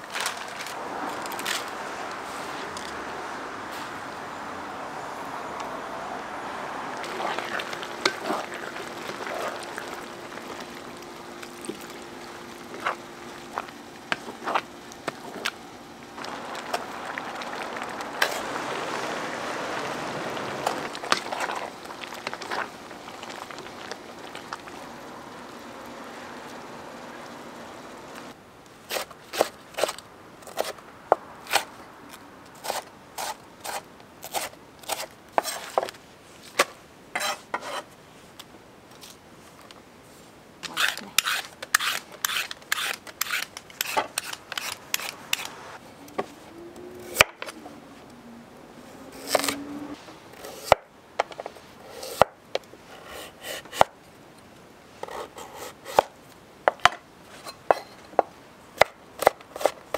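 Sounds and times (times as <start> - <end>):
steady hiss: 35.5 - 46.9.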